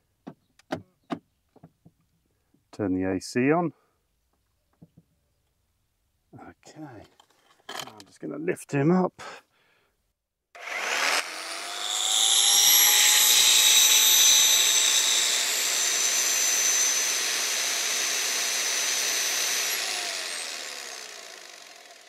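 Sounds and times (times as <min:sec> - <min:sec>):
rotary hammer motor whining: 0:10.6 - 0:22.0.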